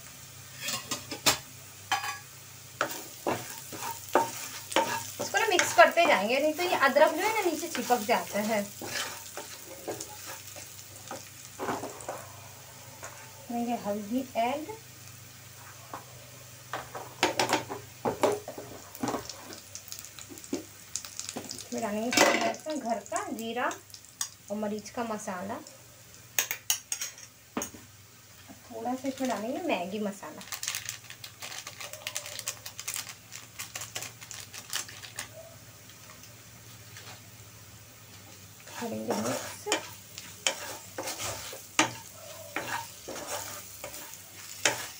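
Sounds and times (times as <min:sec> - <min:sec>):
food frying in oil: 0:00.0 - 0:44.9
spatula scraping a pan: 0:00.5 - 0:01.2, 0:02.8 - 0:12.4, 0:38.6 - 0:44.9.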